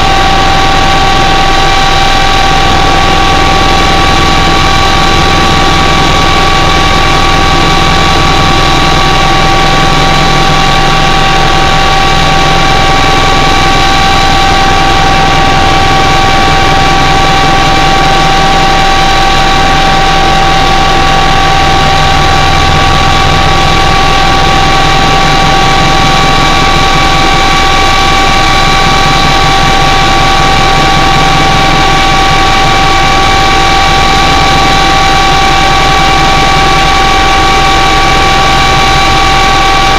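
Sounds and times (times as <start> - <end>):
aircraft engine rumble with whine: 0.0 - 39.9.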